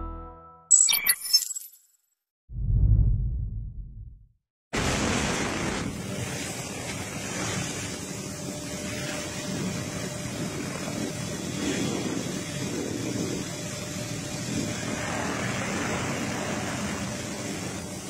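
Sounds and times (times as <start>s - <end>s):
aircraft flying over: 4.8s - 18.0s.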